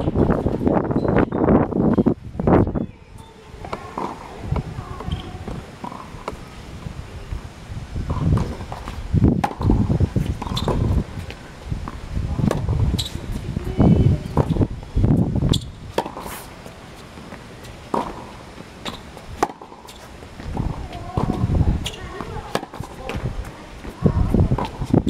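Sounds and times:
tennis ball hits and bounces: 0:03.2 - 0:06.5, 0:08.1 - 0:13.4, 0:14.2 - 0:14.6, 0:15.5 - 0:25.0.

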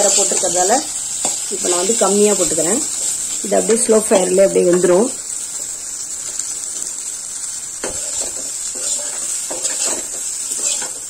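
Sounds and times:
food sizzling in a pan: 0:00.0 - 0:11.0
metal spatula scraping pan: 0:07.8 - 0:11.0.

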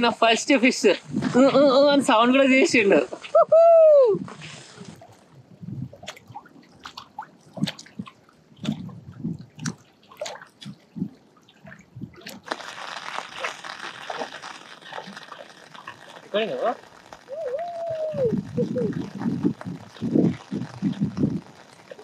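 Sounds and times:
hiss of rain and wind: 0:00.0 - 0:06.0, 0:12.3 - 0:22.0
rain drips: 0:00.0 - 0:22.0
lake water splashing at shore: 0:04.3 - 0:22.0.

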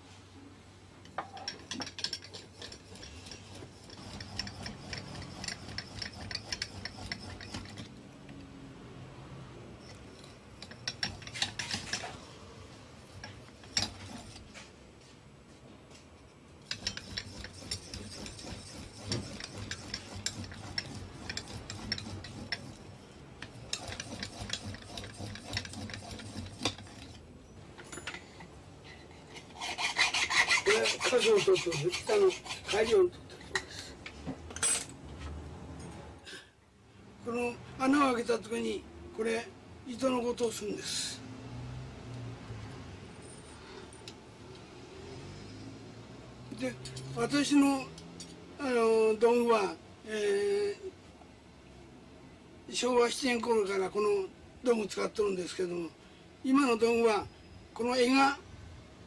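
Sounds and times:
hand drill rasping through metal: 0:01.5 - 0:08.0, 0:09.9 - 0:12.2, 0:13.1 - 0:14.6, 0:16.6 - 0:27.2, 0:29.4 - 0:33.1.

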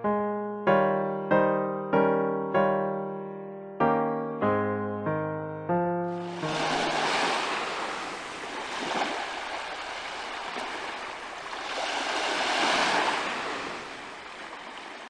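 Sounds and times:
sea waves breaking on shore: 0:06.1 - 0:15.0.

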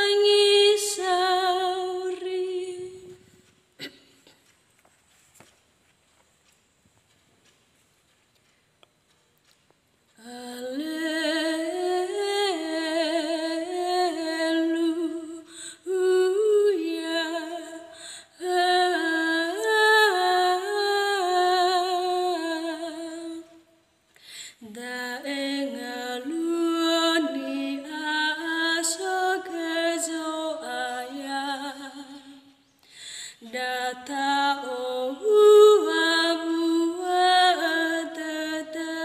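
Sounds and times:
woman singing unaccompanied: 0:00.0 - 0:03.5, 0:10.2 - 0:23.7, 0:24.6 - 0:32.6, 0:33.3 - 0:39.0.

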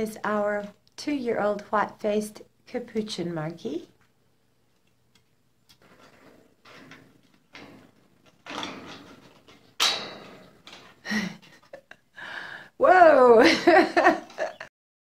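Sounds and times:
monkey climbing rustles and knocks: 0:05.7 - 0:11.9.

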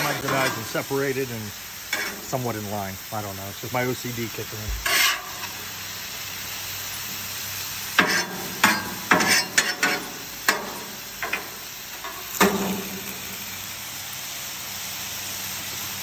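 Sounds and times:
metal spatula clanking and scraping: 0:00.0 - 0:00.8, 0:01.9 - 0:02.4, 0:04.8 - 0:05.6, 0:08.0 - 0:13.2
chicken sizzling on griddle: 0:00.0 - 0:16.0.

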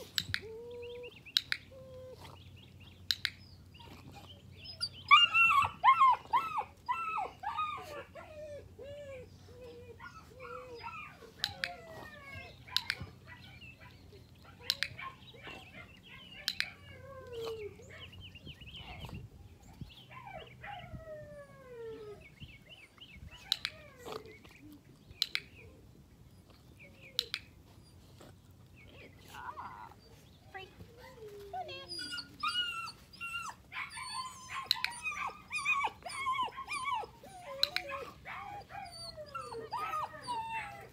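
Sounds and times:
sharp clicks: 0:01.3 - 0:01.7, 0:03.1 - 0:03.5, 0:25.1 - 0:25.6, 0:27.2 - 0:27.5
puppy whining and whimpering: 0:03.8 - 0:13.6, 0:16.6 - 0:18.0, 0:18.7 - 0:24.7, 0:28.9 - 0:40.9.

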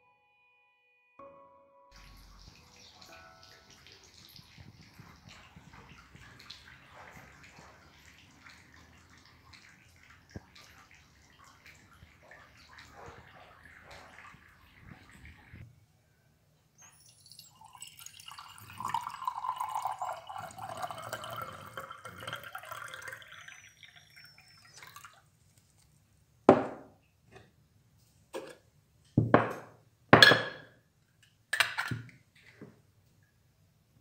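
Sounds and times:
water pouring into metal pot: 0:02.0 - 0:15.6, 0:16.8 - 0:25.2.

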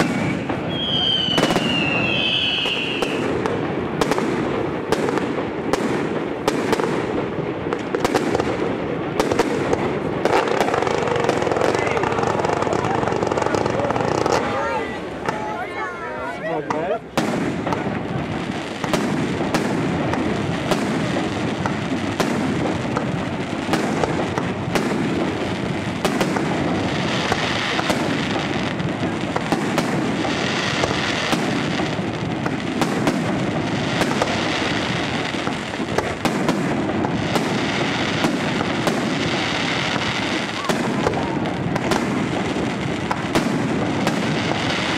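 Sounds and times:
firework shells bursting: 0:00.0 - 0:08.6
dense fireworks crackling: 0:00.0 - 0:44.9.

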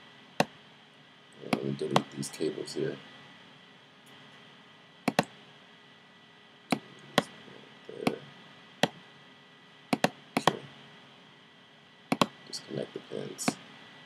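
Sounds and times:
faint steady hiss: 0:00.0 - 0:14.0
computer mouse clicking: 0:05.1 - 0:05.3, 0:10.0 - 0:10.6, 0:12.1 - 0:12.3.

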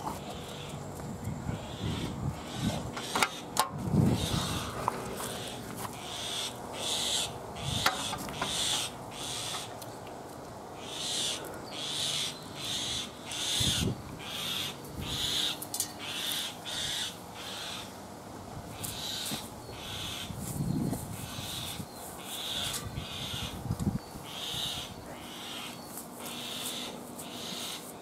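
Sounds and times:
bird rasping squawks: 0:04.1 - 0:09.7, 0:10.8 - 0:17.9, 0:18.8 - 0:20.3, 0:21.2 - 0:23.6, 0:24.2 - 0:27.9.

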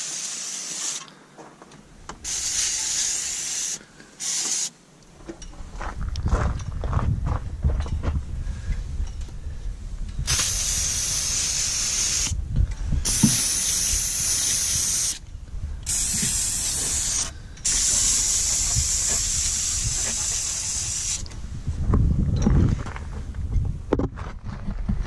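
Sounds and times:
aerosol can spraying hiss: 0:00.0 - 0:01.1, 0:02.2 - 0:04.8, 0:10.3 - 0:12.4, 0:13.0 - 0:15.2, 0:15.9 - 0:21.3.

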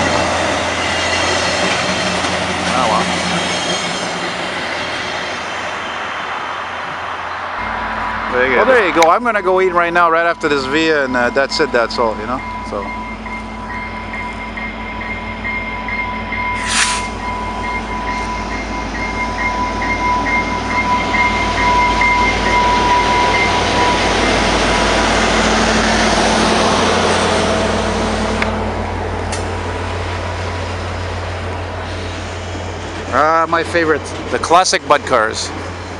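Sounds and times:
train wheels rolling: 0:00.0 - 0:07.0
diesel locomotive passing: 0:00.0 - 0:35.9
steady high tone: 0:07.6 - 0:28.9
brief hiss: 0:16.6 - 0:17.2.

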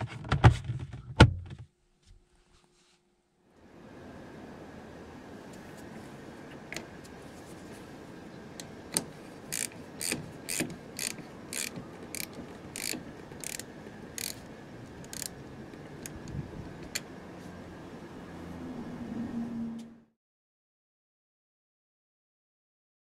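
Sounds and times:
socket ratchet clicking: 0:08.9 - 0:15.4.

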